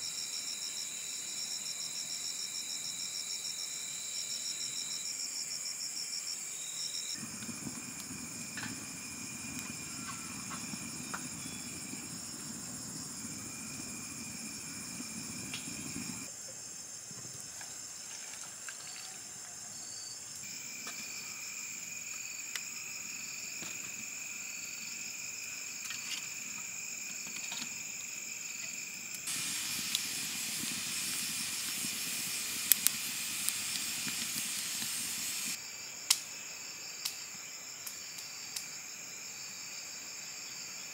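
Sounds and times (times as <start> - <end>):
insects chirring: 0.0 - 40.9
wood fire crackling: 7.2 - 16.3, 29.1 - 36.2.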